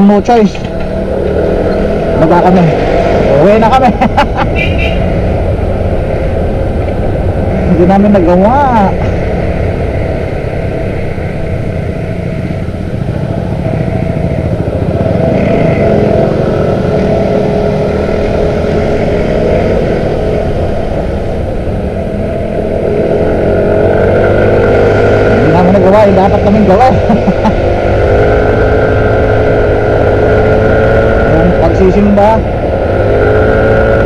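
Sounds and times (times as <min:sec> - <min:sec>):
motor scooter engine running: 0:09.3 - 0:25.8.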